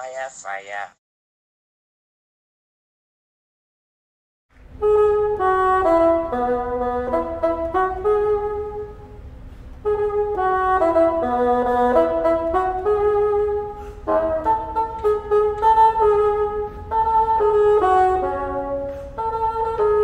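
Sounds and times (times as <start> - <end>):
bassoon melody: 4.7 - 20.0.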